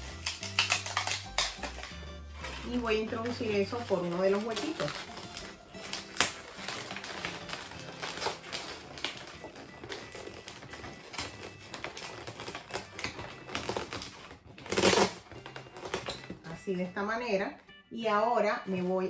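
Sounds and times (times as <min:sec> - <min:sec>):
balloons squeaking and crackling: 0:00.0 - 0:17.8.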